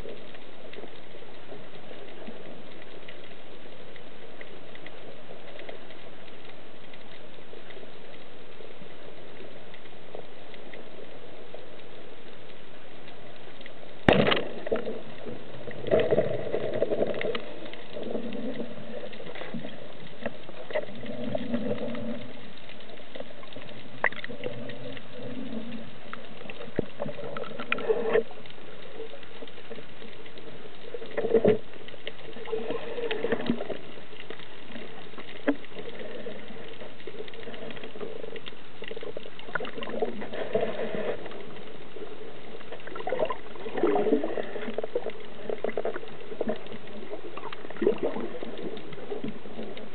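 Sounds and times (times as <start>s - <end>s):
underwater water hiss: 32.2s - 38.4s, 39.5s - 49.9s.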